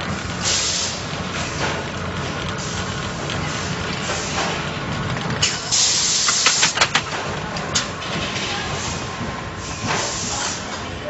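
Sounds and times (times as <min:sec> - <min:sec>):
tyre building machine running: 0:00.0 - 0:11.0
compressed air hiss: 0:00.4 - 0:01.0, 0:05.5 - 0:06.7, 0:09.6 - 0:10.7
sharp clicks and knocks: 0:06.2 - 0:08.4.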